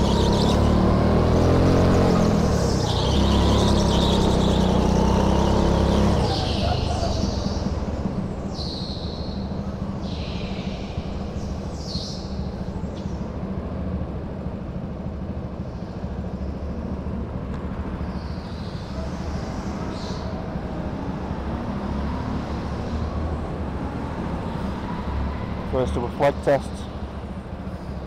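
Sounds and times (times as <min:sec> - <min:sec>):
go-kart engine rumble: 0:00.0 - 0:28.0
tyre squeals: 0:02.0 - 0:07.8.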